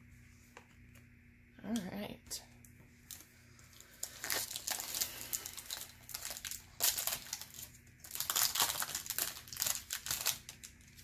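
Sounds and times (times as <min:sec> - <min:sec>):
card pack wrapper crinkling: 0:03.0 - 0:11.0.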